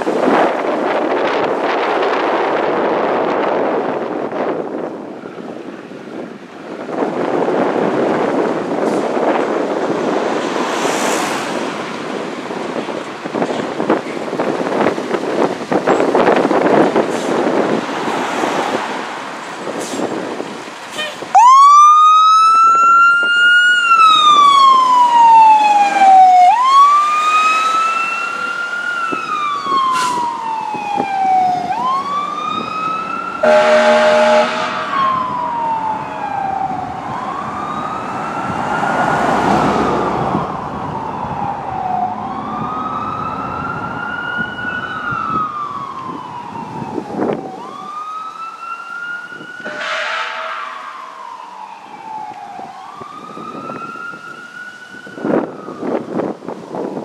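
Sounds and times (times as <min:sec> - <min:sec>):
fire engine siren wailing: 0:00.0 - 0:57.0
horn blast: 0:33.4 - 0:35.1, 0:49.7 - 0:50.9.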